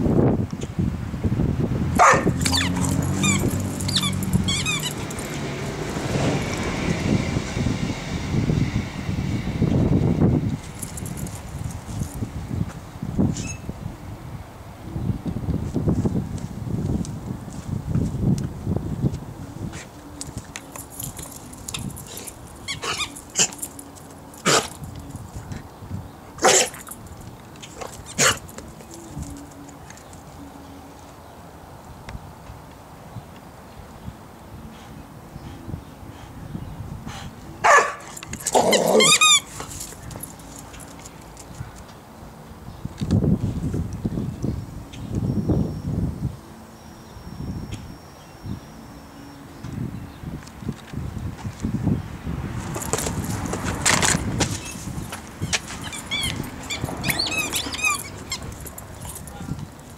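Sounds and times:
dog barking: 2.0 - 2.4, 26.4 - 26.7, 37.6 - 38.1
dog crying: 37.6 - 39.5, 55.8 - 58.6
birds chirping: 54.6 - 59.9.

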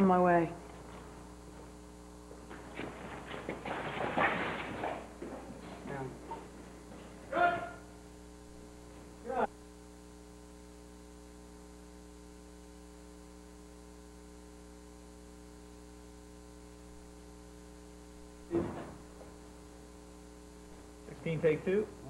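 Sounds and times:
electrical mains hum: 0.0 - 22.0
short loud sounds: 7.3 - 7.9.

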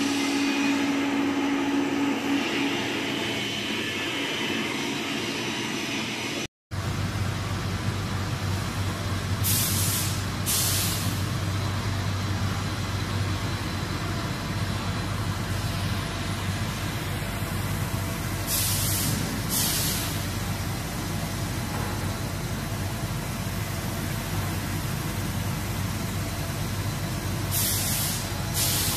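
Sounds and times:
mixer motor humming: 0.0 - 6.5.

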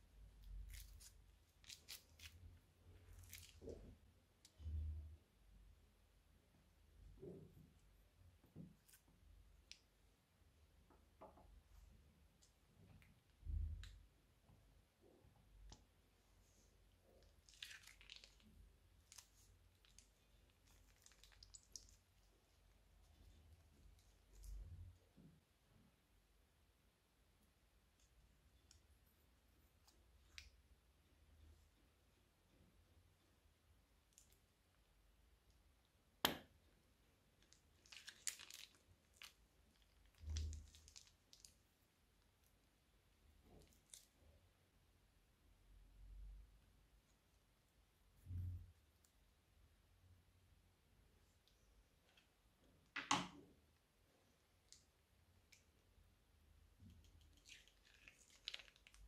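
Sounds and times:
plastic piping bag crinkling: 0.5 - 3.9, 17.2 - 24.5, 37.4 - 41.7, 57.1 - 59.0.

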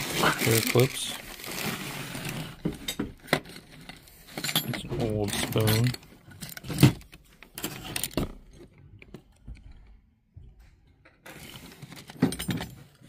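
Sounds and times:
metal trinkets clinking in a box: 3.3 - 7.0.

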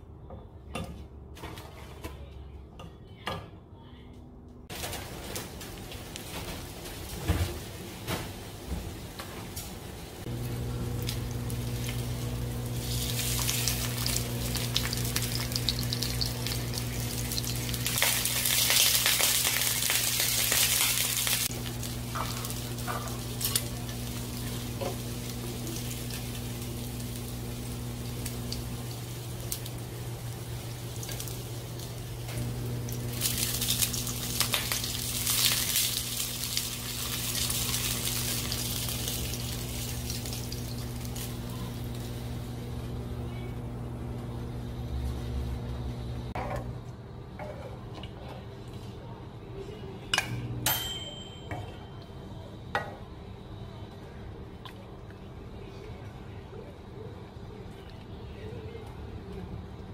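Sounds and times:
microwave oven humming: 3.8 - 54.5
meat sizzling in oil: 10.2 - 42.3.

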